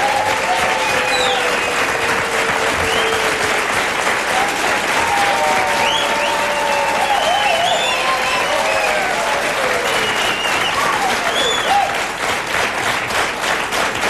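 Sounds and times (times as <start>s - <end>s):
shouts and whistles: 0.0s - 3.4s, 5.0s - 12.0s
audience applauding: 0.0s - 14.0s.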